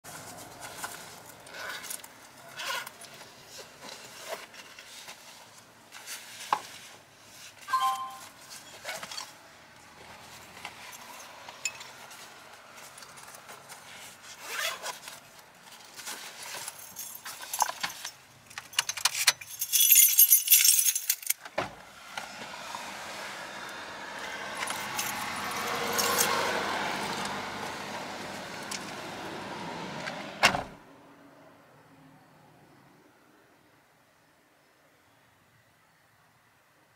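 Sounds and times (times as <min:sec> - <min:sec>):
metallic jingling: 0:16.6 - 0:21.4, 0:24.7 - 0:26.4
vehicle passing: 0:21.8 - 0:33.2.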